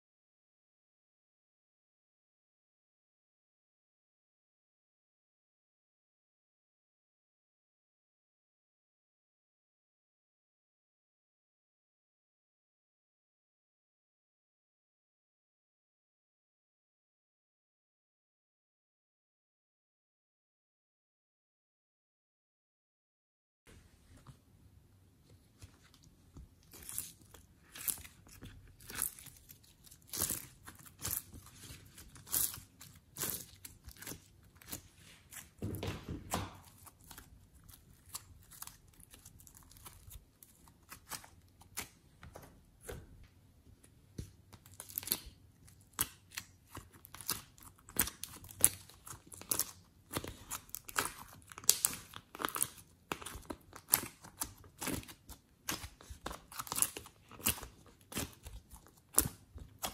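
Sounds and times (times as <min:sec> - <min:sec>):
slime sticky tearing: 0:26.6 - 0:35.5, 0:44.6 - 0:59.9.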